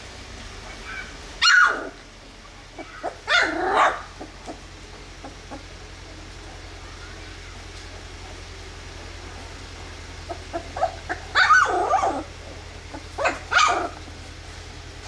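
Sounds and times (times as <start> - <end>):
puppy crying: 0.7 - 2.0, 2.8 - 4.6, 10.3 - 12.3, 12.9 - 14.0.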